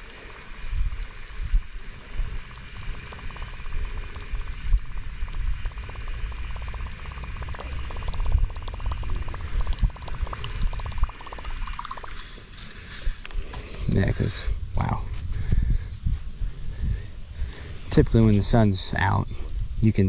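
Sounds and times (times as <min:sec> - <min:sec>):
fishing reel ticking: 0:00.0 - 0:14.4
high insect-like drone: 0:00.0 - 0:20.0
wind buffeting microphone: 0:00.0 - 0:20.0.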